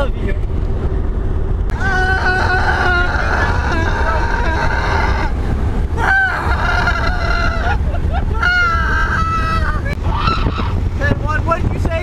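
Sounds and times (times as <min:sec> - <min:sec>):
car driving on highway rumble: 0:00.0 - 0:12.0
person wailing high notes: 0:01.7 - 0:05.3.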